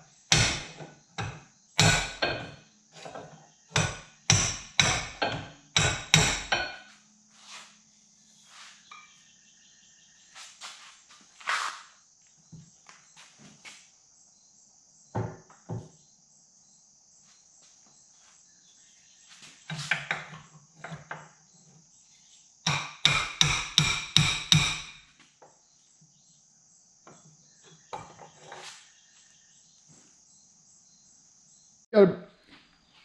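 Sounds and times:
insects buzzing: 0.0 - 33.0
hammer striking metal: 0.3 - 2.6, 3.8 - 6.8, 22.7 - 25.0.

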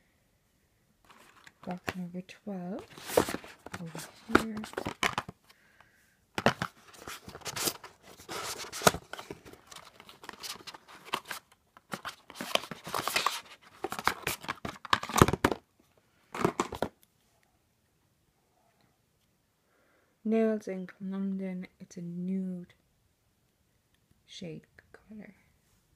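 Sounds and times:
cardboard scraping and rustling: 1.1 - 1.9, 2.8 - 5.4, 6.4 - 15.6.

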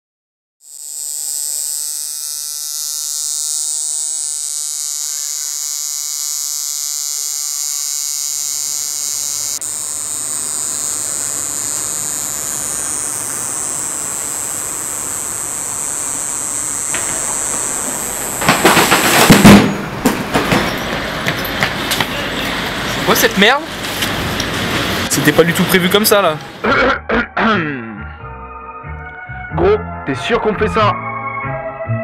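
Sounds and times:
buzzing synthesizer drone: 0.6 - 20.0
loud hiss: 7.2 - 20.0.

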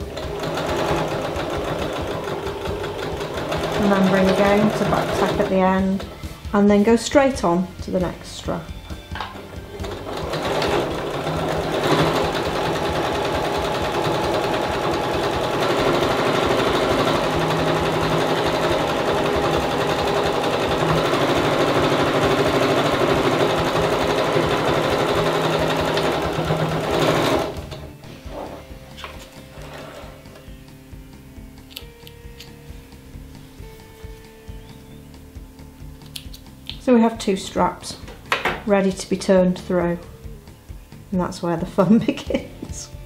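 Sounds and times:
sewing machine stitching: 0.0 - 6.1, 9.7 - 27.9.

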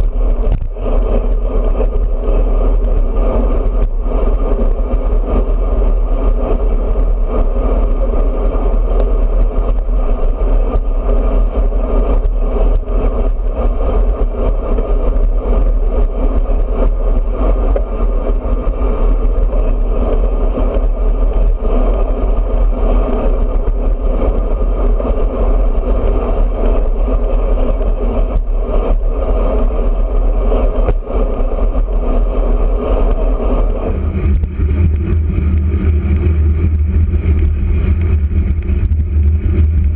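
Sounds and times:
bike road noise: 0.0 - 39.9
deep rumble: 0.0 - 39.9
wind rush: 0.0 - 39.9.

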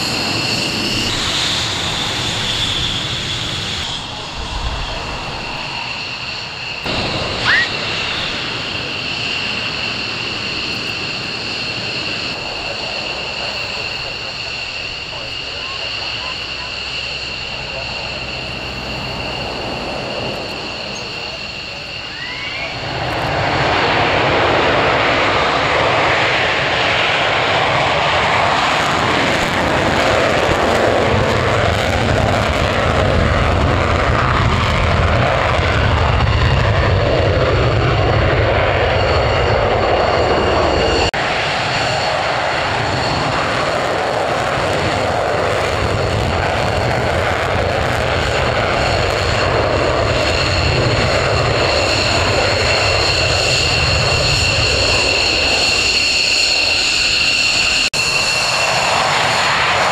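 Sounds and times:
loud jet roar: 0.0 - 59.9
taxiing jet engines whining: 0.0 - 59.9.

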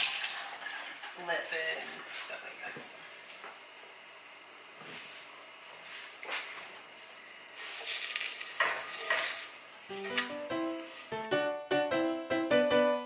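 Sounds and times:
hot pan hissing: 7.7 - 9.7
piano music: 9.9 - 13.0.

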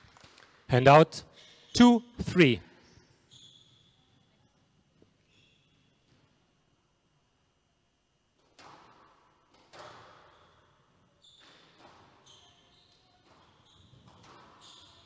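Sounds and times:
shoes squeaking on wooden floor: 11.2 - 15.0.

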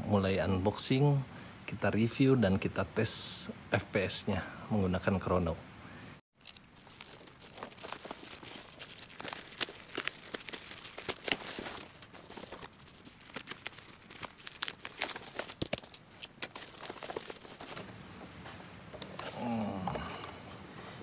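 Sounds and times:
plastic wrap crinkling and tearing: 6.3 - 17.8.

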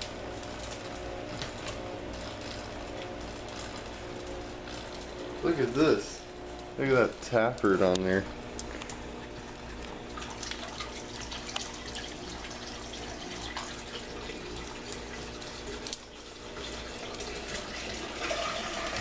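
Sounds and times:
water running and trickling: 0.0 - 19.0
small water drips: 8.5 - 19.0.

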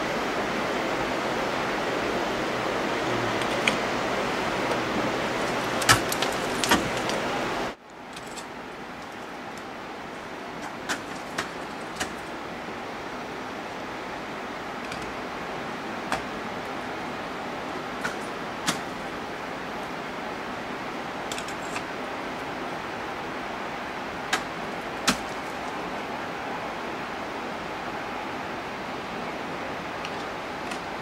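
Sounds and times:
steady hiss: 0.0 - 31.0
ice axe striking ice: 5.4 - 7.2, 10.6 - 12.3, 24.3 - 25.6.

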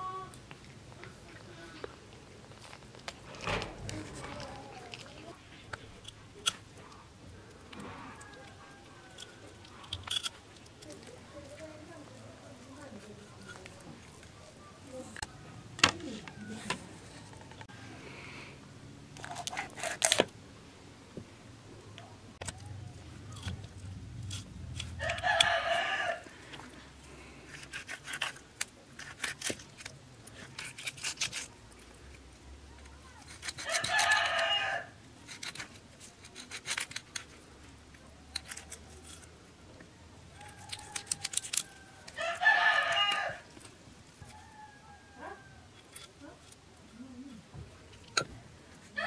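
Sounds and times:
rooster crowing: 25.0 - 26.3, 33.6 - 34.9, 40.4 - 43.5, 44.2 - 45.8
knife scaling fish on wood: 27.5 - 31.5, 33.2 - 34.5, 35.3 - 37.3, 40.4 - 43.0.

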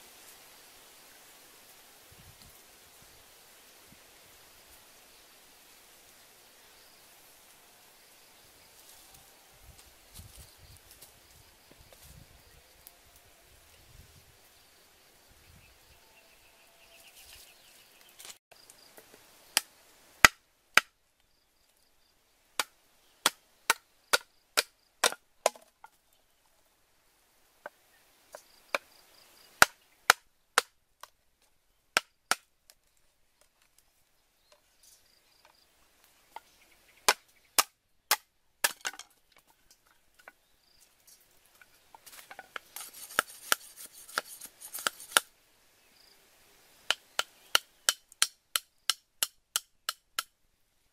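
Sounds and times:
cleaver chopping bamboo: 19.6 - 21.0, 22.6 - 25.7, 29.6 - 30.8, 32.0 - 32.5, 37.1 - 39.1, 42.0 - 45.3, 46.9 - 50.4.

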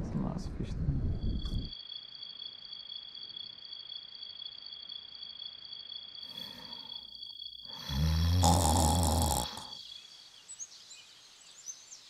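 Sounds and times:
person snoring: 6.2 - 6.9, 7.7 - 9.8.

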